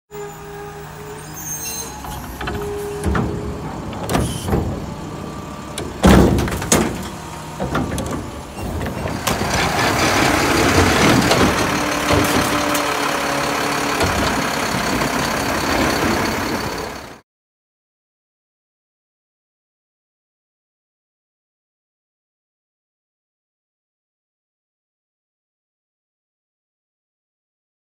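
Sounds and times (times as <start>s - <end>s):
garbage truck engine and hydraulics: 0.1s - 17.2s
loud clunks of cart arm: 1.9s - 17.0s.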